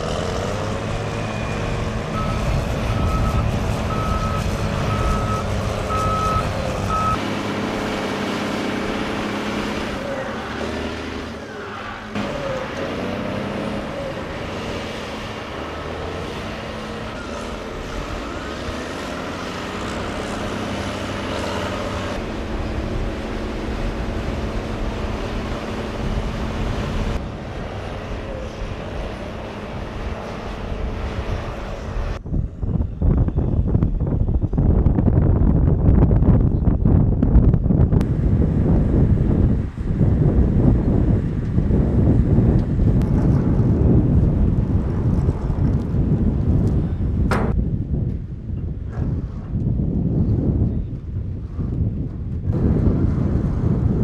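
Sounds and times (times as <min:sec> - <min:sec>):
diesel bulldozer engines: 0:00.0 - 0:54.0
reversing alarm beeps: 0:02.1 - 0:07.2.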